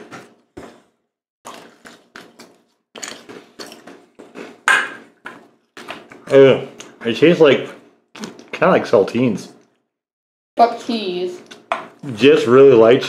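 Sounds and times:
crackers being chewed: 0:00.0 - 0:07.0, 0:08.1 - 0:08.6.

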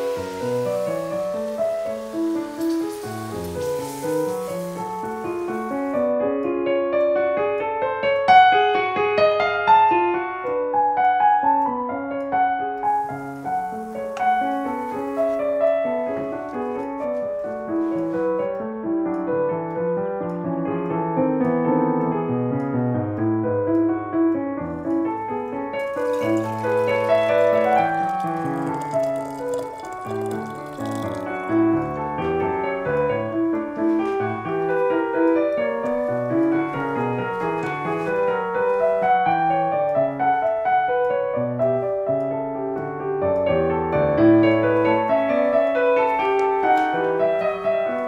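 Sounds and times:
solo piano music: 0:00.0 - 0:48.0.

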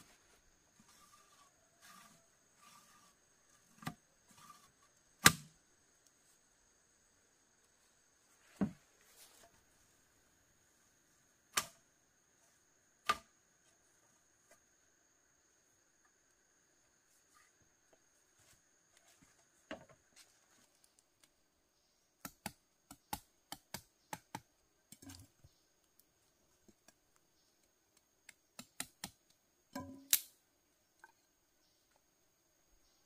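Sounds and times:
tools clicking and knocking on bamboo: 0:22.2 - 0:25.4, 0:26.6 - 0:30.4.

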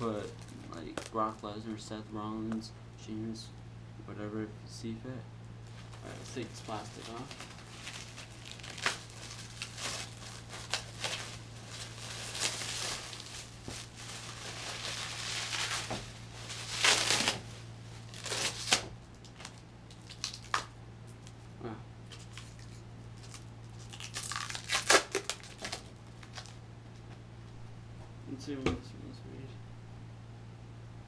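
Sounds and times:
plastic wrap crinkling and tearing: 0:00.0 - 0:01.6, 0:05.7 - 0:21.4, 0:22.1 - 0:26.6.

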